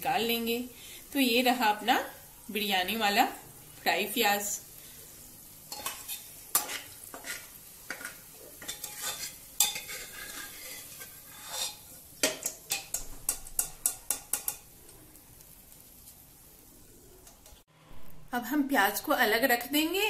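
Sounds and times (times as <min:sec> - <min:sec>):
oil sizzling: 0:00.0 - 0:17.7
metal spoon scraping and clinking: 0:05.7 - 0:14.7.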